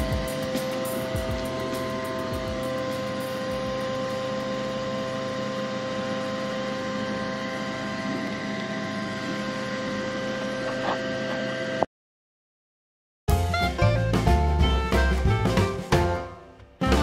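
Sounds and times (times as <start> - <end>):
machine hum: 0.0 - 11.9.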